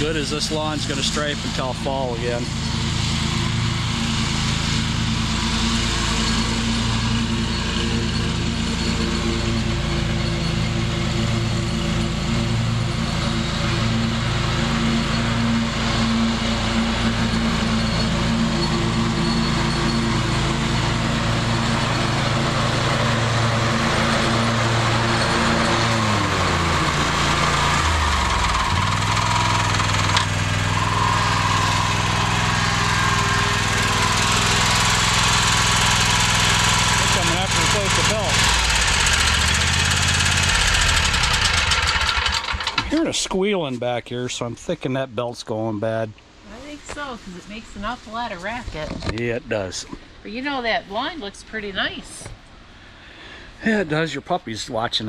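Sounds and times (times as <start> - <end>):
mower engine running: 0.0 - 44.5
thin squeal: 14.8 - 20.8.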